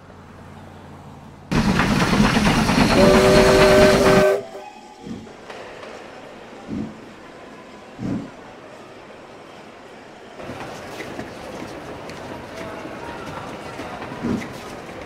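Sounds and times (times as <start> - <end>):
steam locomotive hissing steam: 1.5 - 7.2
steam whistle chord: 2.5 - 4.9.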